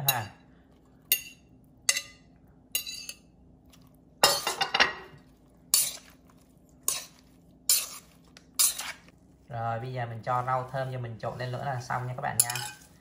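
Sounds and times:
chopsticks clinking in metal bowl: 12.3 - 13.0.

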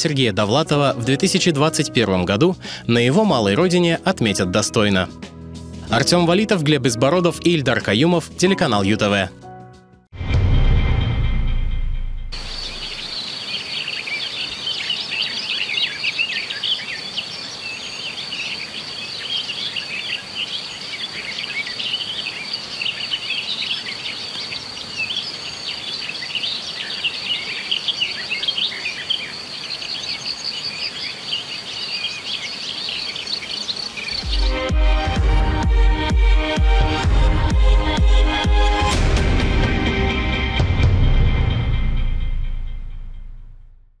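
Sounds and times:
high insect trill: 12.4 - 15.6
small birds chirping: 12.4 - 34.7.

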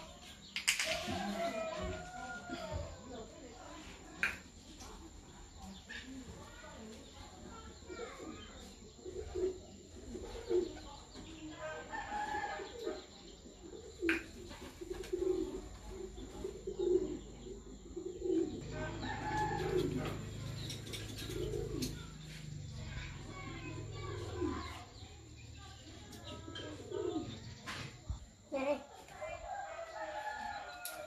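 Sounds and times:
birds calling: 7.7 - 28.4.

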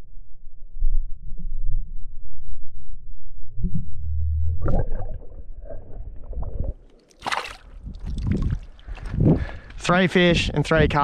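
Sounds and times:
seawater sloshing around wading feet: 7.0 - 7.8.

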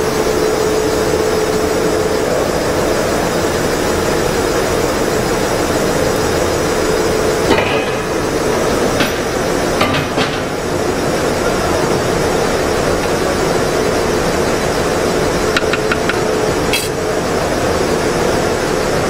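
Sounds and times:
powder mixer humming: 12.6 - 17.7.

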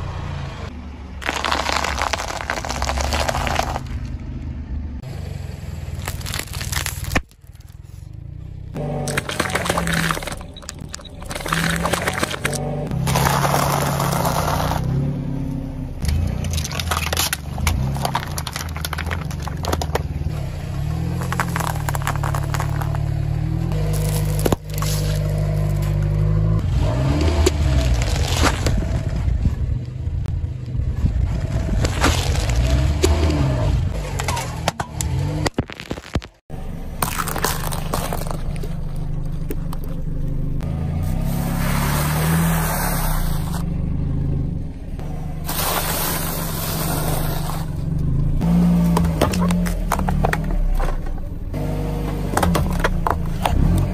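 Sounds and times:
tyre crushing dry noodles: 1.2 - 4.1, 5.9 - 7.6, 11.3 - 14.9, 20.8 - 23.1, 23.7 - 26.2, 37.0 - 39.5
plastic cups cracking and crumpling: 1.2 - 4.2, 5.9 - 7.8, 9.0 - 14.8, 16.4 - 20.2, 21.0 - 23.1, 35.5 - 40.0, 48.9 - 51.0
car tyre crushing pretzels: 1.2 - 4.4, 5.8 - 8.2, 8.8 - 15.0, 16.0 - 29.1, 31.4 - 43.6, 45.0 - 53.9.

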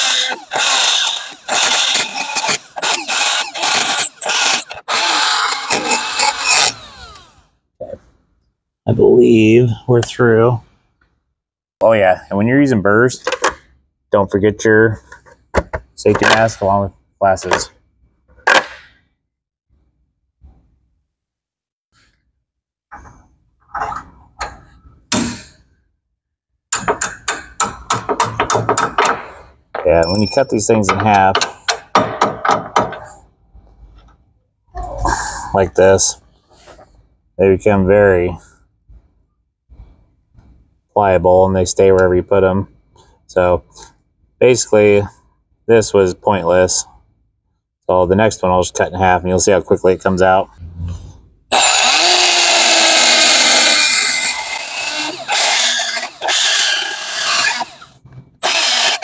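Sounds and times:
die grinder grinding metal: 0.0 - 7.4, 51.5 - 59.0.

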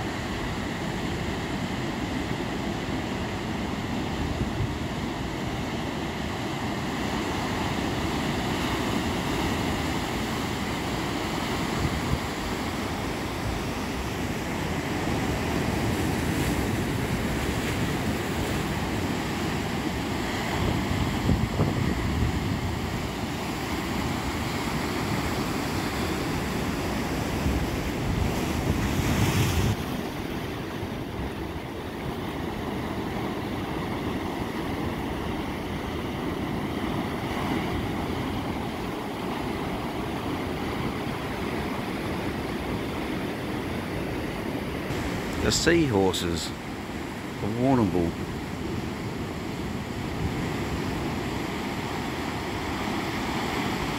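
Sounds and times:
surf breaking on rocks: 44.6 - 48.1.

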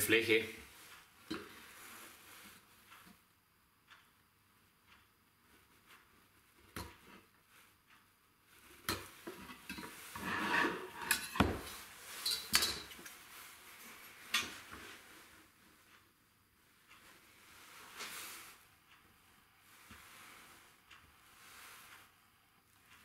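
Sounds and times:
board scraping and shuffling: 10.1 - 12.0.

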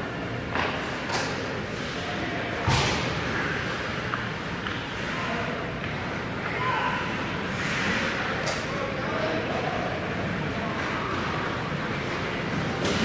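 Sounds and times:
hockey stick clacks: 4.1 - 4.9.

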